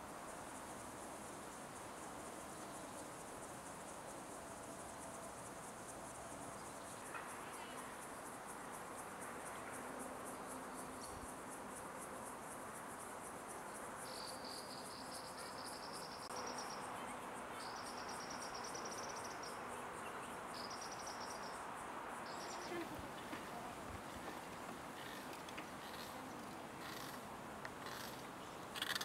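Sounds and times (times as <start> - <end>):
insect lower trill: 4.6 - 29.0
insect high pulsed chirp: 10.2 - 29.0.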